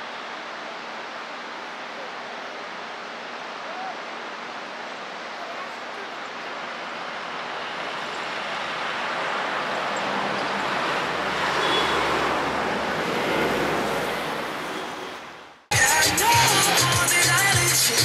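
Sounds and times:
road traffic rush: 0.0 - 18.0
vehicle passing: 7.5 - 15.6.

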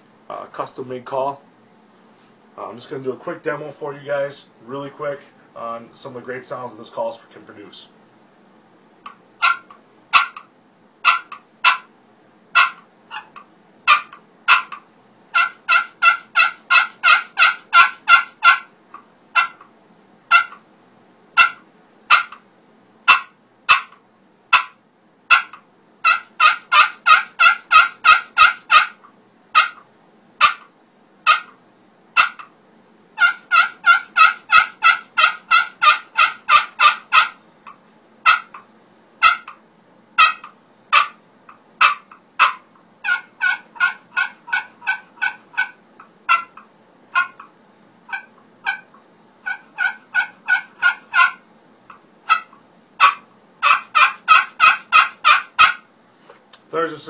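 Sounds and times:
turkey pot call notes: 9.0 - 11.9, 12.6 - 19.6, 20.3 - 20.6, 21.4 - 22.4, 23.1 - 31.6, 32.2 - 32.6, 33.2 - 39.6, 40.2 - 41.2, 41.8 - 47.5, 48.1 - 55.9.

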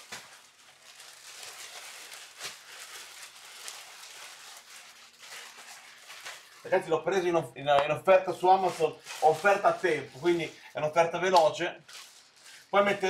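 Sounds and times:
plastic bag rustling and crinkling: 0.0 - 13.0.

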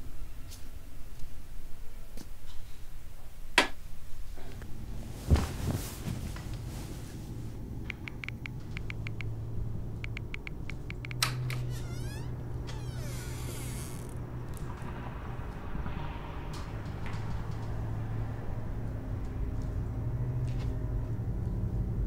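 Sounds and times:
low steady hum: 3.8 - 15.8
phone keyboard typing clicks: 7.9 - 9.4, 10.0 - 11.7.

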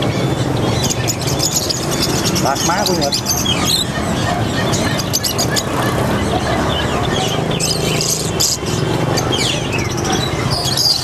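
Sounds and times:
songbirds chirping and twittering: 0.0 - 11.0
street traffic drone: 0.0 - 11.0.

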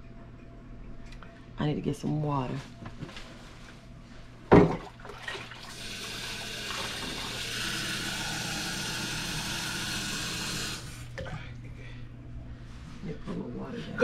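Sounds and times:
faucet filling a mug: 5.2 - 11.0.

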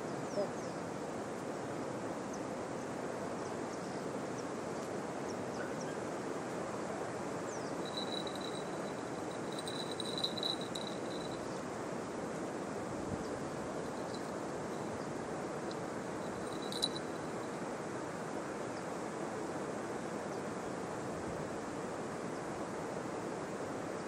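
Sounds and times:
high even bird trill: 7.8 - 11.4
rushing background noise: 7.8 - 11.4
high falling bird chirps: 7.8 - 11.5.

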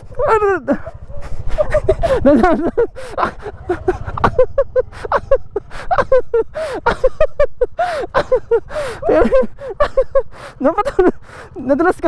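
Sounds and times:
motorbike engine running: 0.0 - 12.0
people laughing: 0.6 - 11.2.

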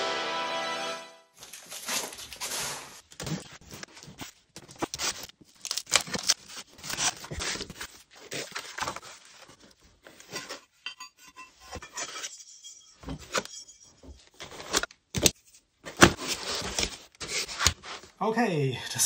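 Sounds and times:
packaging tearing: 1.4 - 9.0
packaging scraping and rustling: 1.4 - 10.6, 15.9 - 18.2.

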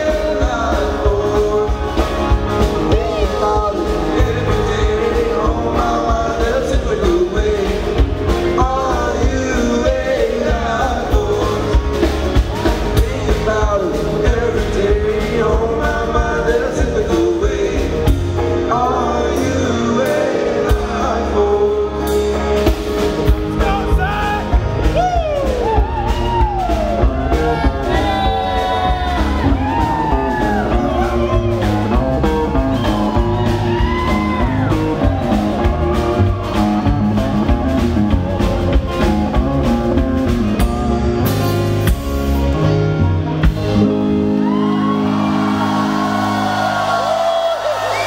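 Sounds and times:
person singing: 0.0 - 22.6, 23.6 - 41.6
drums: 0.0 - 48.0
electric guitar: 0.0 - 48.0
crowd whooping and cheering: 23.6 - 40.2, 43.8 - 48.0.

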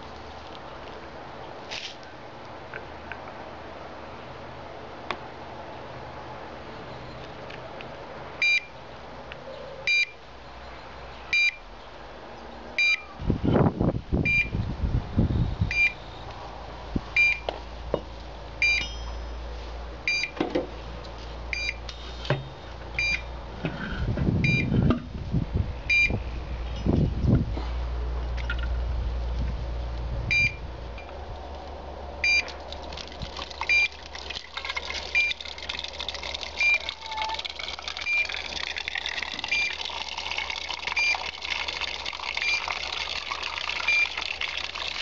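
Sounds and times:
rustling and knocks on metal: 20.4 - 20.8.

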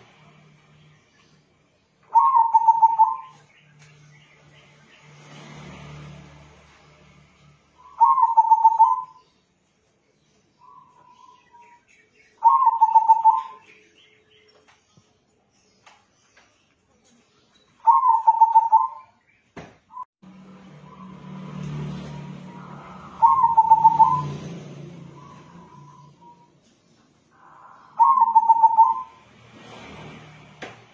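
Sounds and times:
dove cooing: 2.1 - 3.3, 7.9 - 9.2, 12.4 - 13.7, 17.9 - 19.0, 22.5 - 24.4, 27.4 - 29.2.

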